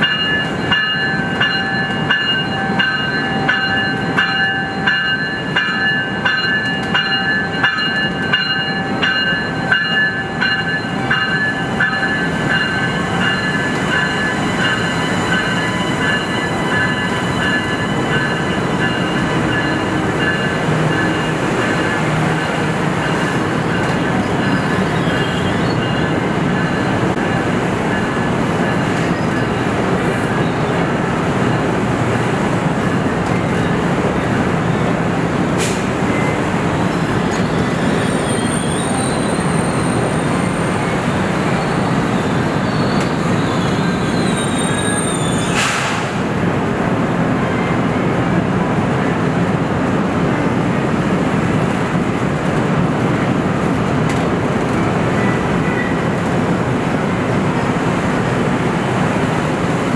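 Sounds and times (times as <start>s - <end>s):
train rolling on rails: 0.0s - 59.9s
wheel squeal: 36.9s - 45.8s.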